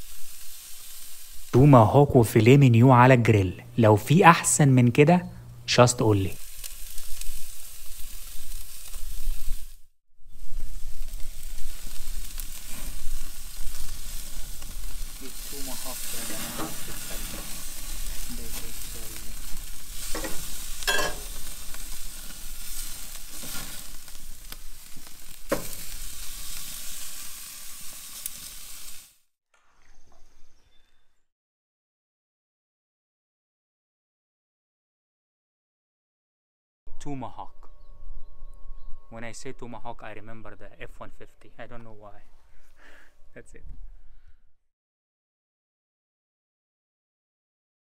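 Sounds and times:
sharp crackles: 0.0s - 2.6s, 4.9s - 29.2s
steaks sizzling on a grill: 0.0s - 2.7s, 6.1s - 29.2s.

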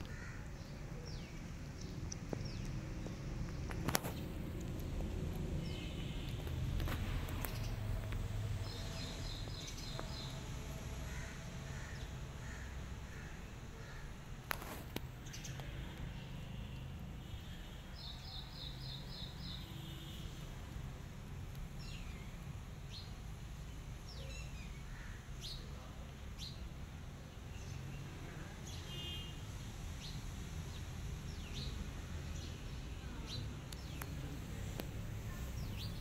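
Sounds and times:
birds chirping: 0.0s - 20.5s, 30.0s - 36.0s.

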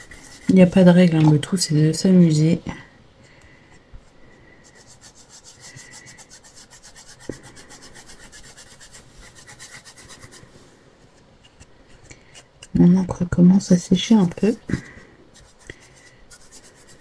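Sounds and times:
foam dauber scrubbing on paper: 0.0s - 1.5s, 4.6s - 10.6s, 15.3s - 17.0s.

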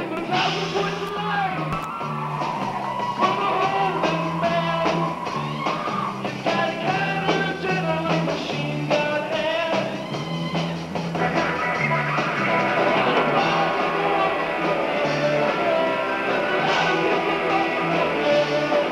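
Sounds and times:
bass line: 0.0s - 18.9s
live rock band playing: 0.0s - 18.9s
man singing into microphone: 3.2s - 5.1s, 6.4s - 9.9s.

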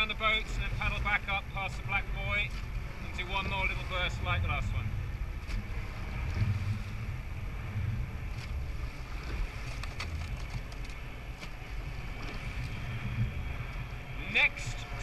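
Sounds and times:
water rushing along a hull: 0.0s - 15.0s
wind buffeting the microphone: 0.0s - 15.0s
oars clicking in their gates: 8.3s - 13.9s.

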